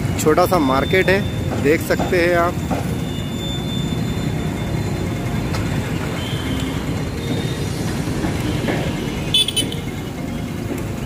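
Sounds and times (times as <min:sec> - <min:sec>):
street traffic rumble: 0:00.0 - 0:11.0
vehicle horn toot: 0:09.2 - 0:09.9.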